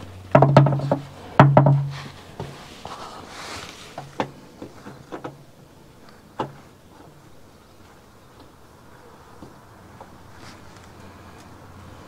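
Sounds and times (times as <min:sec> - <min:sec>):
oil filter clicks and knocks: 0:00.3 - 0:02.5
soft rubbing hiss: 0:01.9 - 0:05.0, 0:10.2 - 0:11.4.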